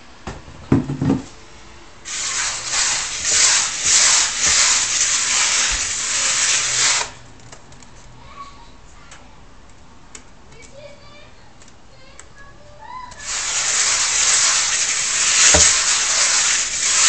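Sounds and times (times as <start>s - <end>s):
grains scraping in wooden bowl: 13.2s - 17.0s.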